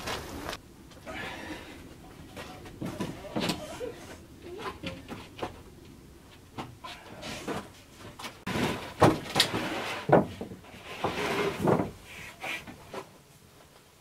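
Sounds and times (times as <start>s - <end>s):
wood scraping: 1.9s - 13.2s
hollow wooden knocks and thuds: 7.5s - 12.0s.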